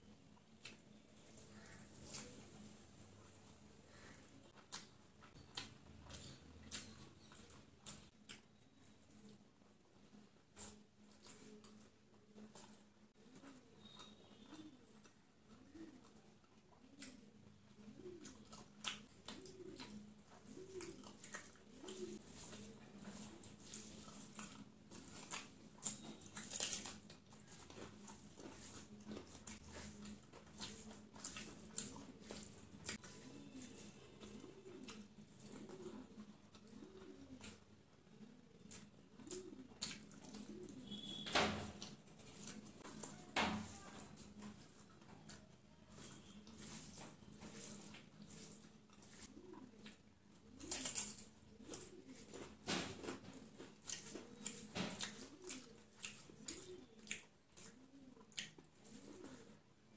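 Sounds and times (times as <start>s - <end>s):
chewing: 0.1s - 9.4s, 10.0s - 41.2s, 41.8s - 59.6s
wet clicks and smacks: 4.6s - 8.6s, 38.6s - 43.2s, 53.7s - 59.1s
faint low coos: 10.1s - 24.7s
fingers squishing rice: 10.1s - 41.2s, 41.8s - 59.6s.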